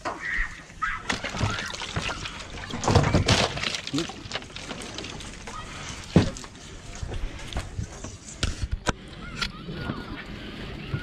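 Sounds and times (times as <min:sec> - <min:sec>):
water sloshing in a crate: 0:00.8 - 0:08.0.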